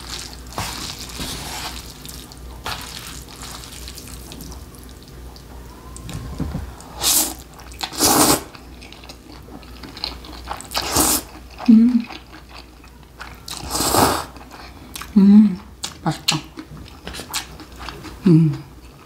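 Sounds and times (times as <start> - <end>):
chopsticks mixing wet noodles: 0.0 - 5.4
slurping noodles: 6.8 - 8.6, 10.6 - 11.4, 13.5 - 14.4.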